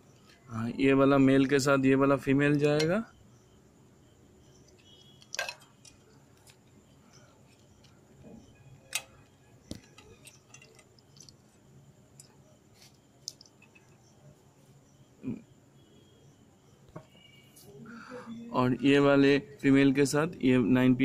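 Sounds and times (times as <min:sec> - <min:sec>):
plastic connectors clicking: 0:04.7 - 0:07.9, 0:08.8 - 0:11.4, 0:13.2 - 0:14.0.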